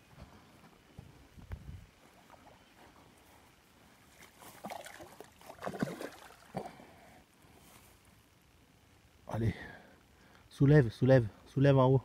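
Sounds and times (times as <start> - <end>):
fish splashing in water: 4.5 - 6.8.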